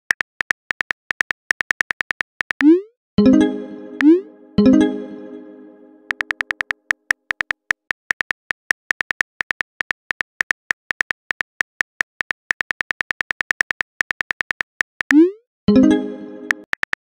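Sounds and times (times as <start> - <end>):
phone keyboard typing clicks: 0.1 - 2.7, 6.1 - 15.2
tone: 2.6 - 6.4, 15.2 - 16.6.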